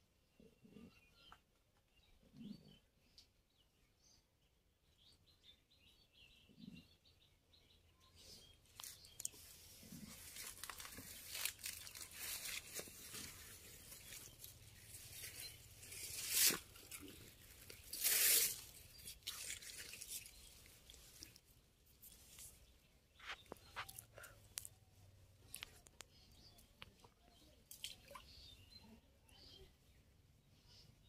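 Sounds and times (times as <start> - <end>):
rustling and crackling at microphone: 8.2 - 28.4.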